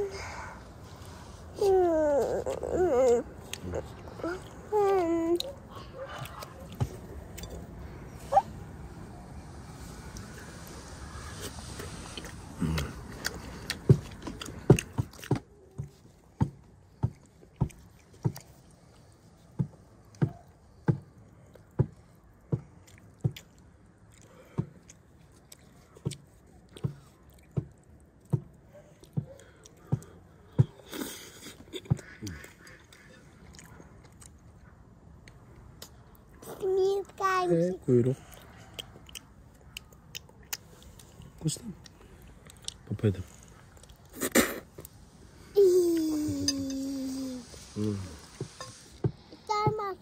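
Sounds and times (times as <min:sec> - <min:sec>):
person chewing with mouth smacks: 0:00.9 - 0:08.5, 0:10.1 - 0:20.5, 0:22.5 - 0:36.6, 0:38.2 - 0:45.0.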